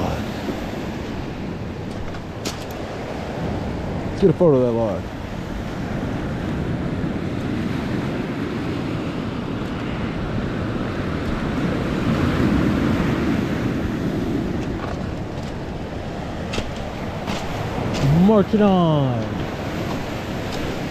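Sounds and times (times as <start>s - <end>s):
wind on microphone: 4.9s - 20.9s
waves washing onto stone cobbles: 14.2s - 20.9s.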